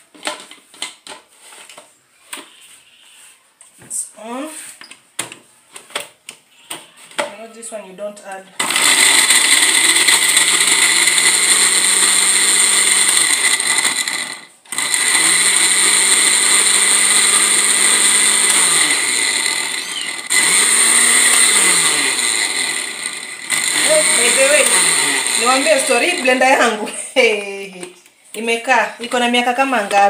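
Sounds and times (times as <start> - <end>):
blender motor grinding: 8.6 - 26.9
motor hum winding down: 8.7 - 26.4.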